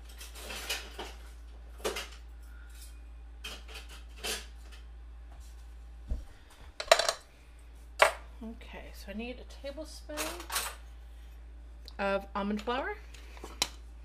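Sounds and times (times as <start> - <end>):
dishes clinking and knocking: 6.8 - 7.2.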